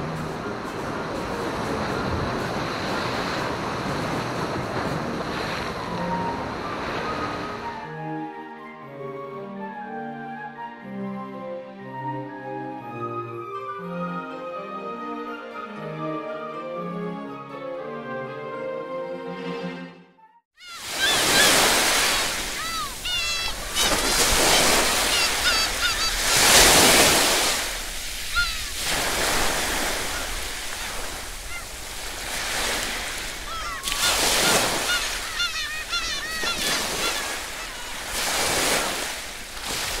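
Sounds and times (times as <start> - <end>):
sea surf breaking on rocks: 0.0 - 7.6, 20.7 - 40.0
birds calling: 20.6 - 39.2.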